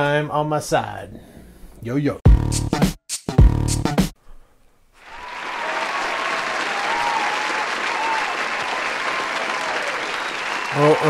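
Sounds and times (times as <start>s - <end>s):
audience applause and cheering: 5.0s - 11.0s.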